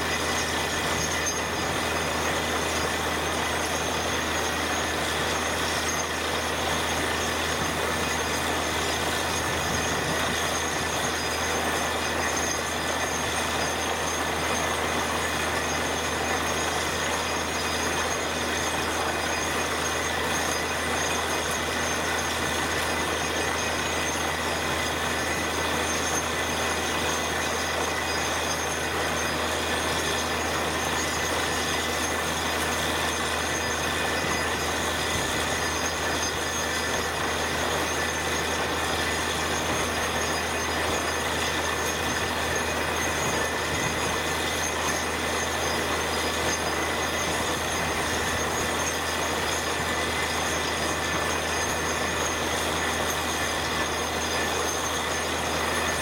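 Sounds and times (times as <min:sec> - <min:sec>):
drilling rig engine hum: 0:00.0 - 0:56.0.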